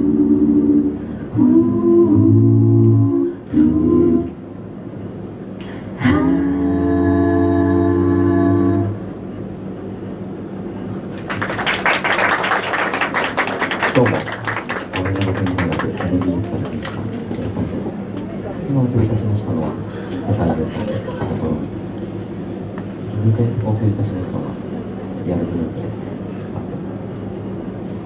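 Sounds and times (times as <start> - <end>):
a cappella group singing: 0.0 - 4.7, 5.7 - 9.2
audience applause: 11.1 - 17.5.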